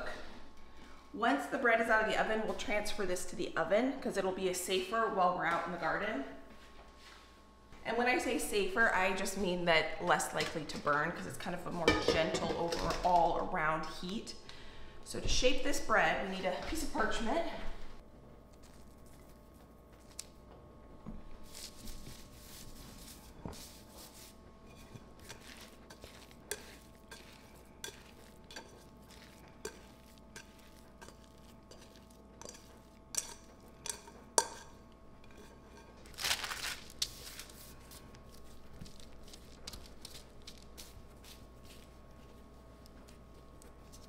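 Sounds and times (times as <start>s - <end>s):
faint steady hum: 0.0s - 44.0s
parchment paper rustling: 21.4s - 33.0s, 35.4s - 44.0s.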